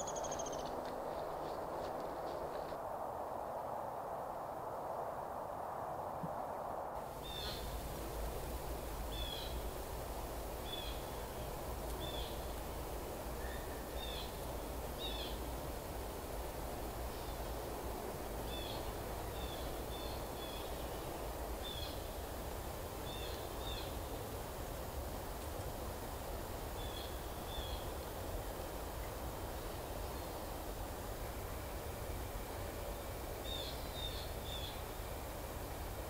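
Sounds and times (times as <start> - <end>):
bird chirping: 0.0 - 0.8, 7.2 - 7.8
steady low rumble: 0.6 - 23.0.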